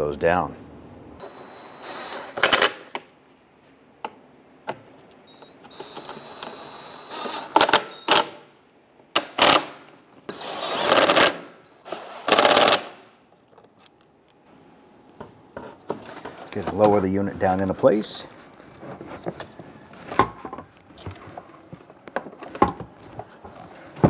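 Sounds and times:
impact wrench whining and hammering: 1.2 - 3.1, 4.7 - 8.5, 9.2 - 13.0.

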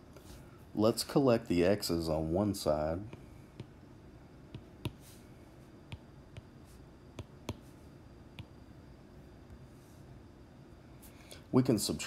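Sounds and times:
low room hiss: 0.0 - 12.0
taps on a touchscreen: 7.2 - 7.7.

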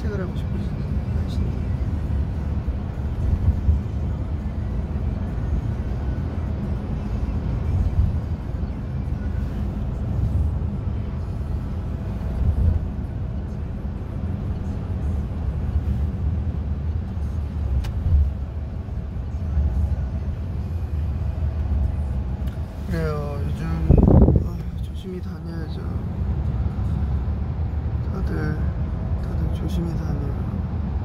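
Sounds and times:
car cabin rumble: 0.0 - 28.0.

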